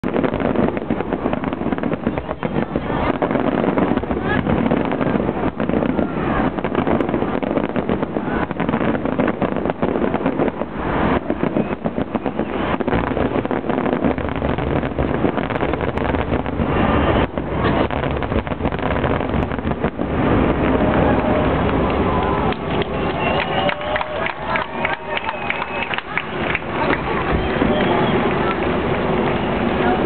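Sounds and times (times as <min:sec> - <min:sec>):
fireworks booming: 0:00.0 - 0:30.0
fireworks crackling: 0:00.0 - 0:30.0.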